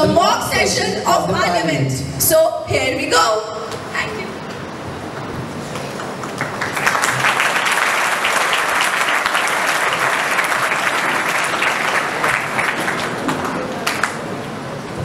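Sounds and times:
crowd clapping: 5.7 - 14.5.

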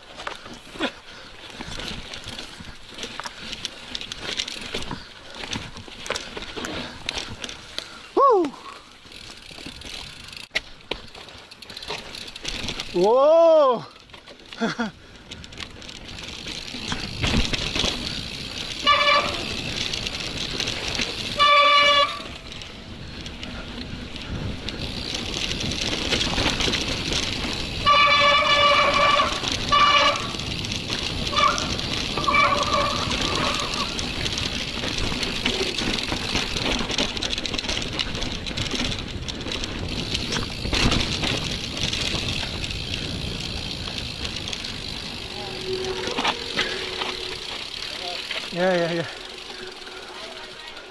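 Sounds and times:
bike rattling: 0.0 - 50.9
bike tyres rolling over dirt: 0.0 - 50.9
wind noise: 15.1 - 47.7
high call or toot: 18.8 - 19.6, 21.3 - 22.4, 27.8 - 30.4, 31.3 - 33.8, 45.2 - 48.1, 49.1 - 50.9
wavering tone: 45.2 - 47.7, 49.2 - 50.9.

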